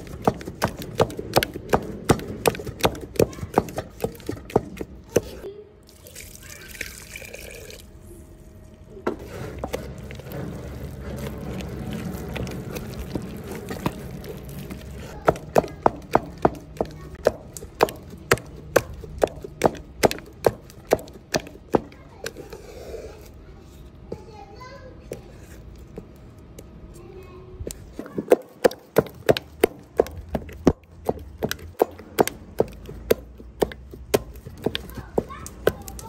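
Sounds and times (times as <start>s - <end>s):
water pouring into a pot: 5.9s - 7.9s.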